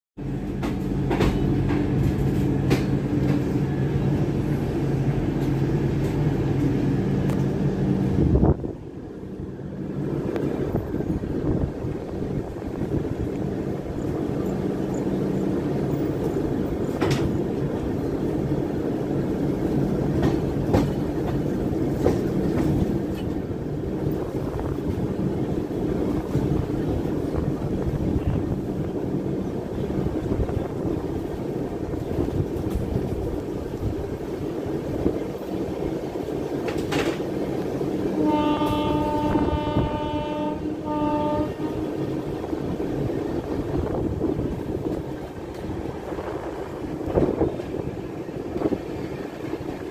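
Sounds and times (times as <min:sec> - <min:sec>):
train rolling rumble: 0:00.2 - 0:49.9
wheels clicking over rail joints: 0:15.9 - 0:28.4, 0:29.0 - 0:37.8
locomotive horn: 0:38.1 - 0:42.1.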